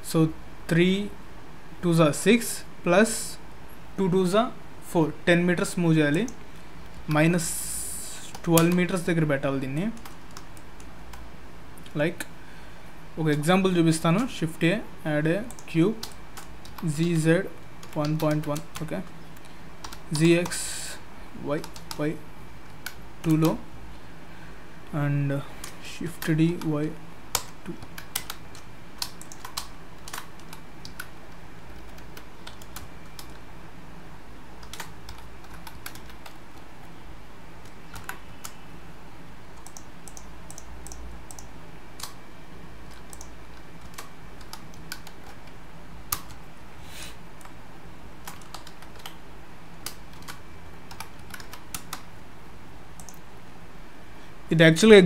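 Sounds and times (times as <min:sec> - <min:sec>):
faint low hum: 0:00.0 - 0:55.0
keyboard keystroke clicks: 0:17.8 - 0:18.9, 0:27.3 - 0:31.1, 0:34.6 - 0:36.4, 0:37.6 - 0:38.6, 0:39.6 - 0:42.2, 0:48.2 - 0:49.2, 0:49.8 - 0:52.1, 0:53.0 - 0:53.2.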